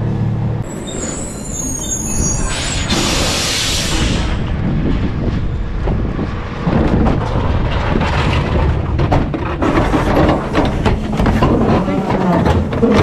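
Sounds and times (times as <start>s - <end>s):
garbage truck rumbling: 0.0s - 13.0s
truck body rattling: 4.6s - 13.0s.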